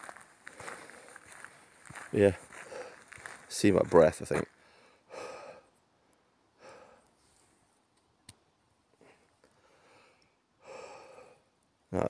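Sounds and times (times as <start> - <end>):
man breathing out softly: 9.0 - 11.4.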